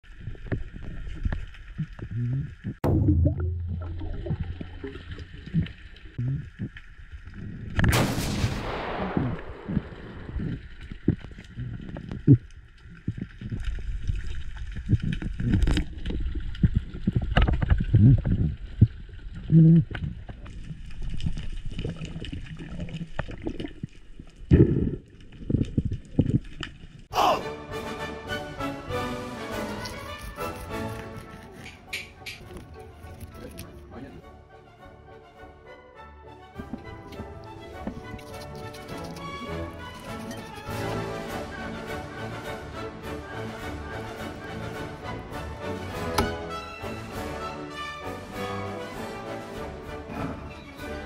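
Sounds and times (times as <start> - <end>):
sea water sloshing and gurgling: 0.0 - 7.8, 9.5 - 27.1
low surges of water: 0.0 - 27.1
low muffled thumps: 2.8 - 4.8
small clicks: 37.9 - 40.7.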